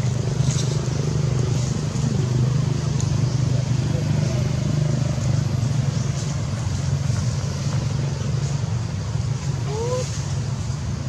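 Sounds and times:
low engine hum: 0:00.0 - 0:11.0.

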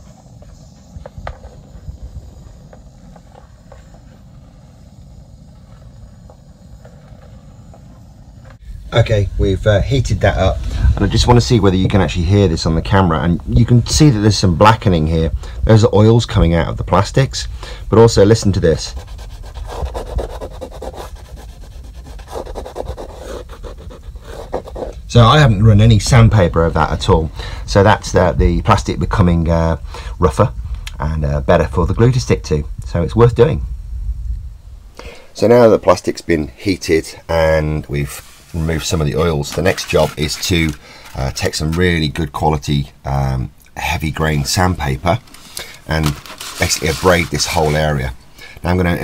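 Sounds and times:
finger rasping on plastic: 0:18.8 - 0:25.0.

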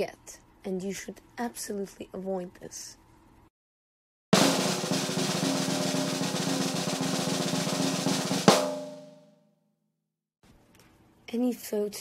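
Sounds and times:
snare drum roll: 0:04.4 - 0:09.2
drum final hit ringing: 0:04.4 - 0:09.3.

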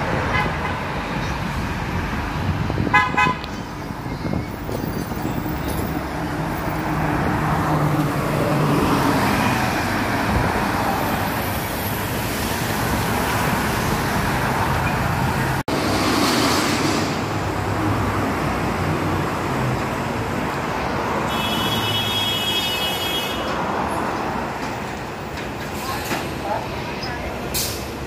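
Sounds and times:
street traffic noise: 0:00.0 - 0:28.0
bus engine driving off: 0:03.5 - 0:21.2, 0:23.4 - 0:28.0.

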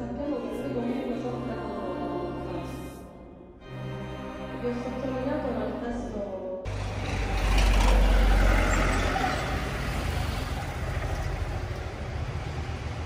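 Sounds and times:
low traffic rumble: 0:06.7 - 0:13.0
vehicle passing close by: 0:06.7 - 0:13.0.

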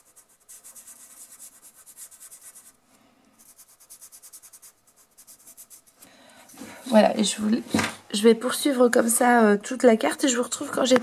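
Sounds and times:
fingertip rubbing pastel on paper: 0:00.0 - 0:02.8, 0:03.4 - 0:06.0.

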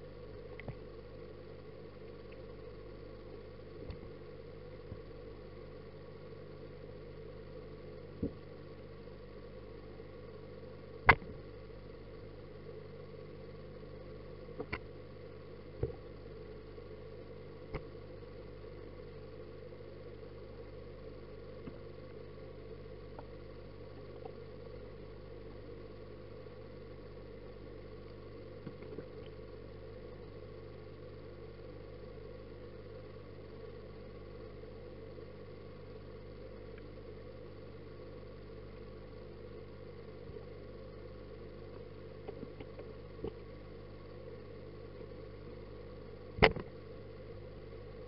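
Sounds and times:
aquarium filter pump hum: 0:00.0 - 0:48.0
faint ticks: 0:00.3 - 0:00.9, 0:02.0 - 0:02.8, 0:14.4 - 0:15.0, 0:17.6 - 0:18.0, 0:23.0 - 0:24.5, 0:28.0 - 0:29.5, 0:36.6 - 0:37.0, 0:41.7 - 0:43.5
fish knocking against camera: 0:46.4 - 0:46.7.

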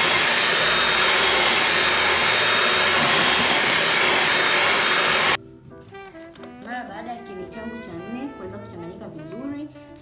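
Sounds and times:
electric hand mixer running: 0:00.0 - 0:05.4.

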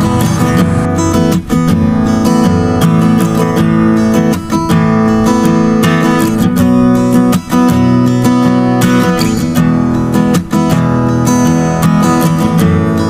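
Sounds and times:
strummed acoustic guitar chords: 0:00.0 - 0:13.0.

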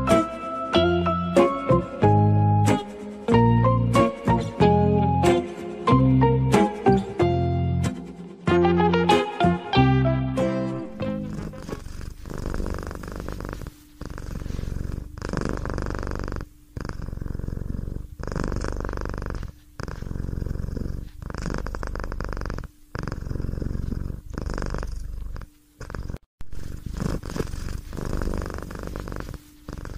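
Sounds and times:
cat purring: 0:10.8 - 0:29.9.

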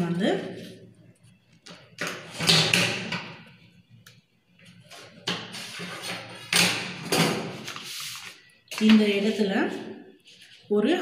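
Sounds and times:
paper sheets rustling and sliding: 0:07.5 - 0:09.1.

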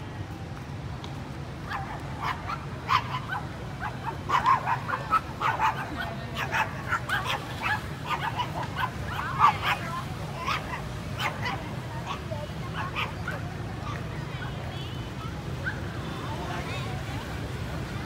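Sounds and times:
small dog yapping: 0:01.7 - 0:12.2.

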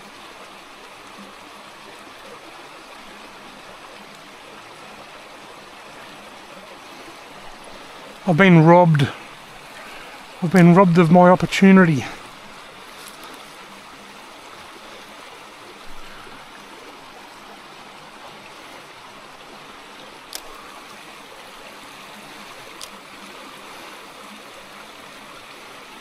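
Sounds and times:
water trickling into pool: 0:00.0 - 0:26.0.

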